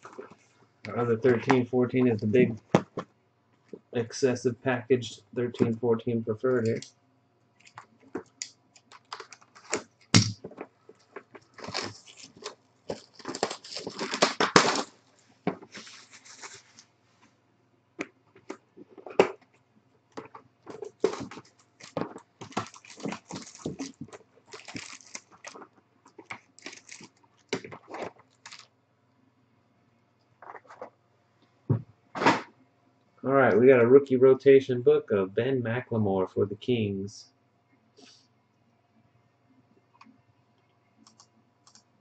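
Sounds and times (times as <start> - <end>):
plastic wrapping crinkling: 7.6 - 16.9, 20.2 - 28.7.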